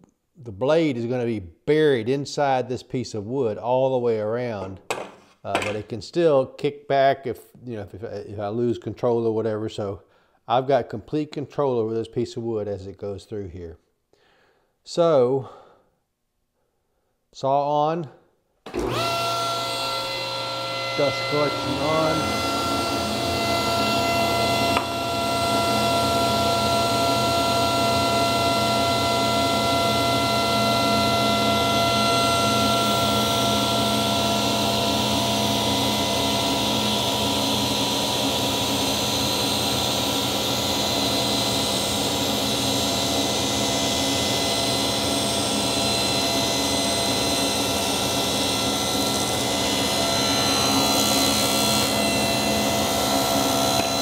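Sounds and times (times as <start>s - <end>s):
table saw whine: 18.7s - 54.0s
dust collector air rush: 18.9s - 28.8s, 31.9s - 54.0s.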